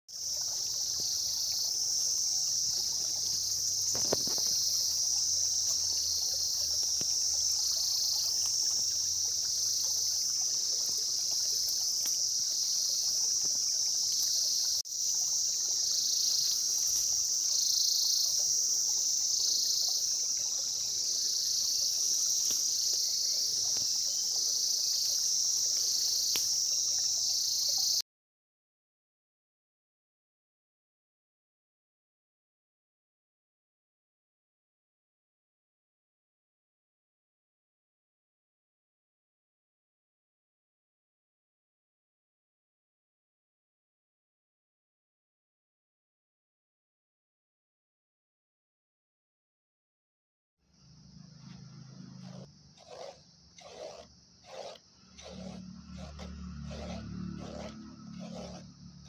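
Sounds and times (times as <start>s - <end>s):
insects singing high-pitched drone: 0.1s - 28.0s, 50.7s - 59.0s.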